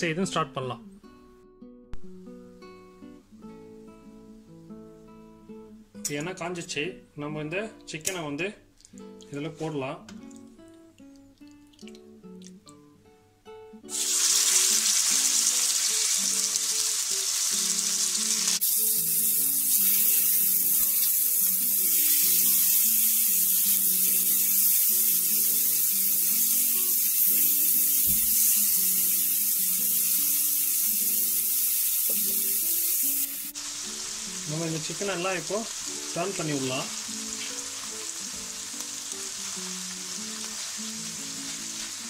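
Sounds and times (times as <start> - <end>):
acoustic guitar music: 0.0 - 42.0
chicken sizzling in hot oil: 13.9 - 42.0.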